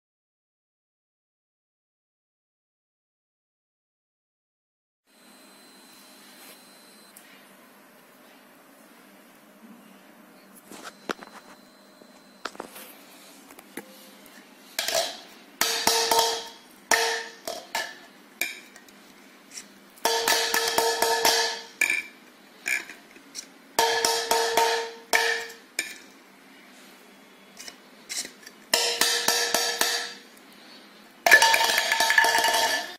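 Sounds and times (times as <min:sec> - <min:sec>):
plastic glasses clattering: 0:31.3 - 0:32.9.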